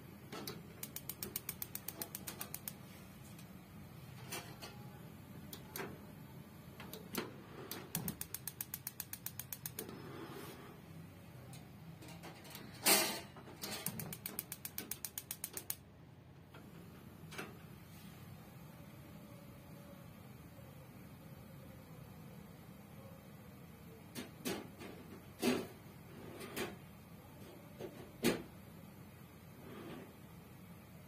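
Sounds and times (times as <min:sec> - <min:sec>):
spark igniter ticking rapidly: 0:00.7 - 0:02.8, 0:06.9 - 0:09.9, 0:13.8 - 0:15.8.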